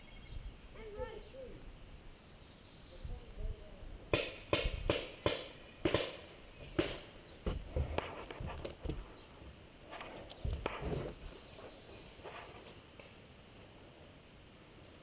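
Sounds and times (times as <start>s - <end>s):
footsteps on wooden deck: 7.4s - 12.7s.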